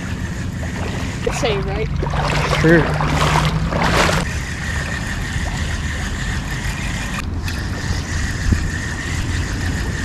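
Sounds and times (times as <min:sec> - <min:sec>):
wind rumble on microphone: 0:00.0 - 0:10.0
legs wading through water: 0:00.1 - 0:09.9.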